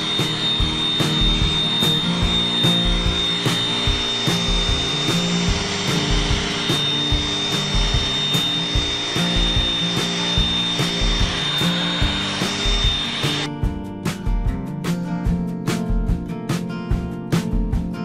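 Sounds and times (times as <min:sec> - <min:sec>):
handheld vacuum cleaner whining: 0:00.0 - 0:13.5.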